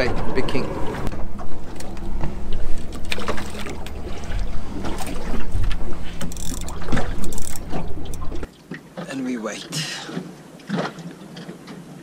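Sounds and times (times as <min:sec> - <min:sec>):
low rumble: 0:00.0 - 0:08.5
water slapping boat hull: 0:00.8 - 0:09.2, 0:10.0 - 0:12.0.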